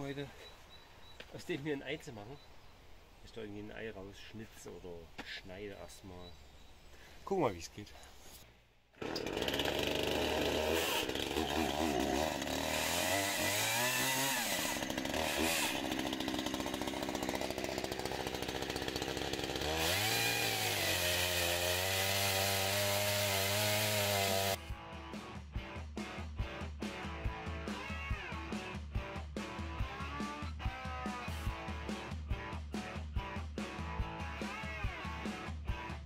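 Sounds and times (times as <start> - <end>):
chainsaw cutting wood: 9.0 - 24.6.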